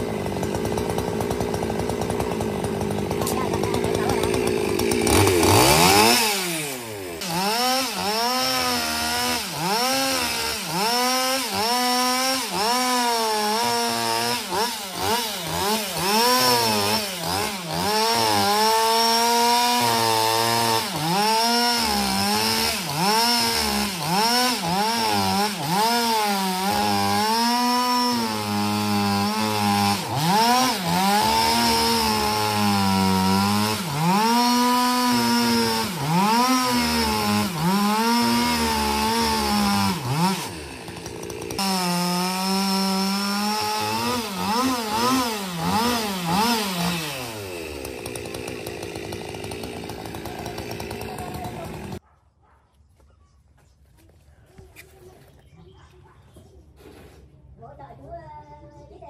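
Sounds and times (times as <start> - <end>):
chainsaw cutting a log: 0.0 - 52.0.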